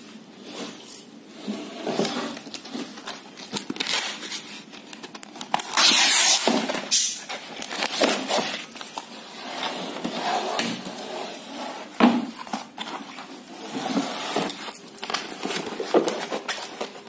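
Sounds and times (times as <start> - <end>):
canvas ripping: 5.6 - 6.5.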